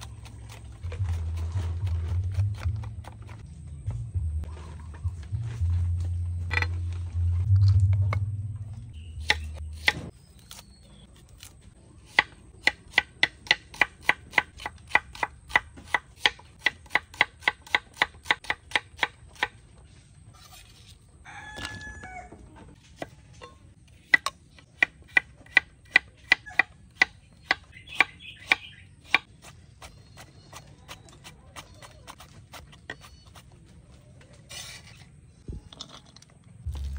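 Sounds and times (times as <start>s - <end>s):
low hum: 0.0s - 10.3s, 35.4s - 36.9s
rooster crowing: 21.2s - 22.4s.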